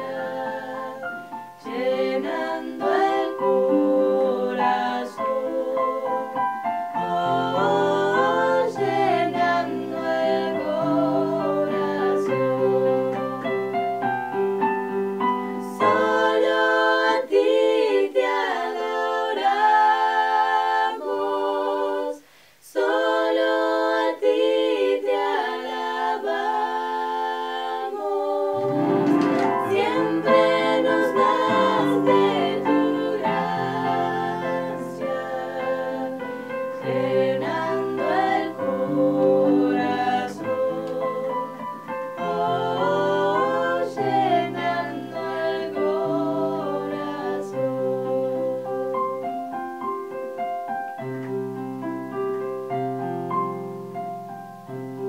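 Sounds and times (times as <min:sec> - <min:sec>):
women singing in harmony: 0:00.0 - 0:49.6
electronic keyboard: 0:28.5 - 0:55.0.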